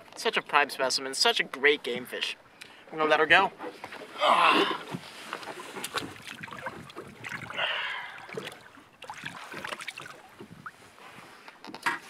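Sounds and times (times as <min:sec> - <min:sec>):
water splashing against boat: 0:03.3 - 0:11.4
water dripping: 0:05.8 - 0:10.8.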